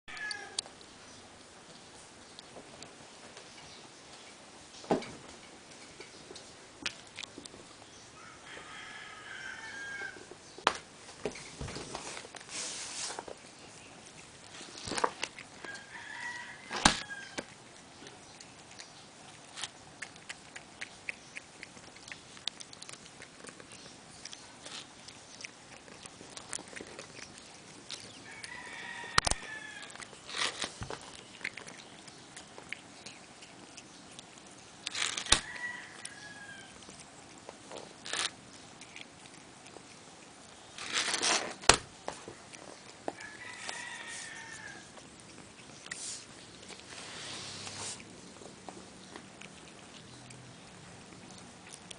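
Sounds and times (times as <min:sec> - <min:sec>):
cat chewing grass: 0:05.4 - 0:08.9, 0:11.0 - 0:51.9.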